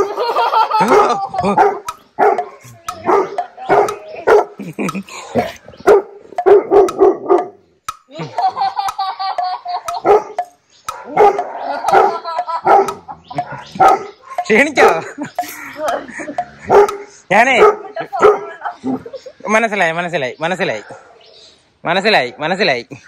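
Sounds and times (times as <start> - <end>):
dog barking: 0.8 - 4.6, 5.8 - 7.6, 10.0 - 15.1, 16.6 - 18.6, 20.8 - 21.3
drawn-out dog sound: 0.8 - 4.6, 5.3 - 7.6, 9.9 - 15.2, 16.4 - 19.1.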